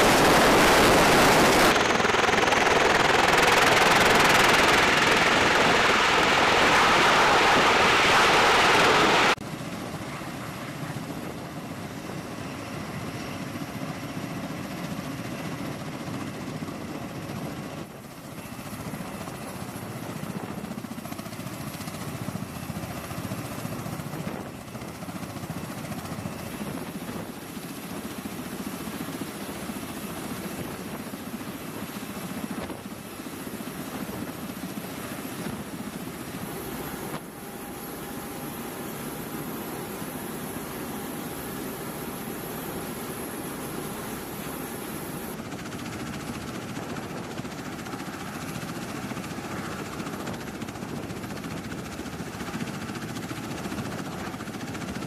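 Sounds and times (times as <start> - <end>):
thin steady whine: 0.0 - 9.4, 29.9 - 45.4
tiltrotor aircraft running: 0.0 - 55.0.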